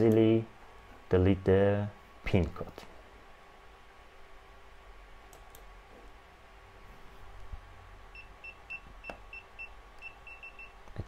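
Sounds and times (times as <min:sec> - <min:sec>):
keypad beeping: 0:08.2 - 0:10.8.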